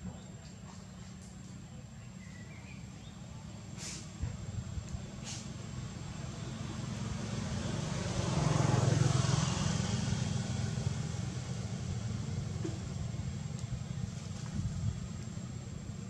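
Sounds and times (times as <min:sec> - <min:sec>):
vehicle engine driving past: 0:05.1 - 0:16.0.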